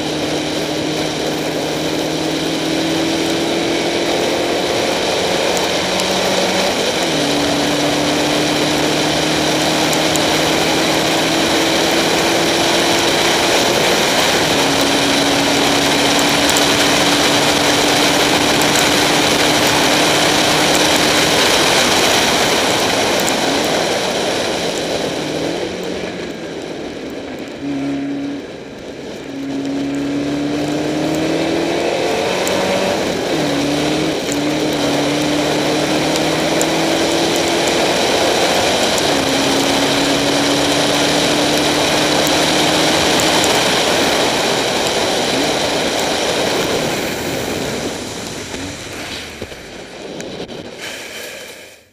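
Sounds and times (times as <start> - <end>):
race car engine running hard: 0.0 - 51.0
hiss of wind and spray: 31.7 - 51.9.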